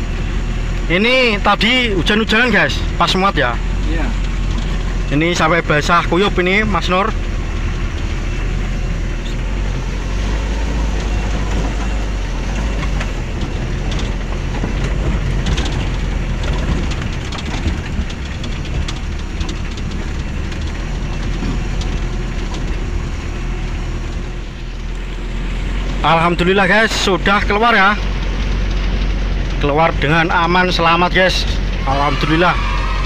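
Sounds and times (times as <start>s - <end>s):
pickup engine hum: 0.0s - 33.0s
road rumble: 0.0s - 33.0s
knocks and rattles: 1.6s - 25.1s.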